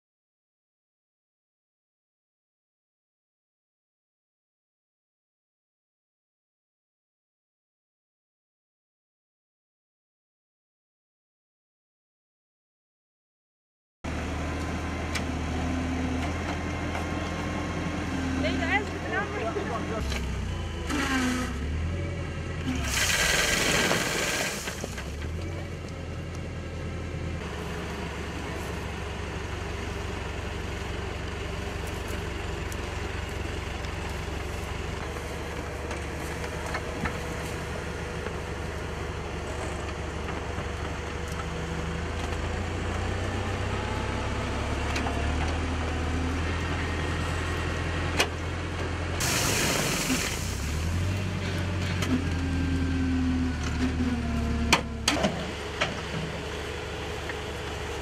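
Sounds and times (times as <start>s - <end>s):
tractor engine running: 14.1s - 58.0s.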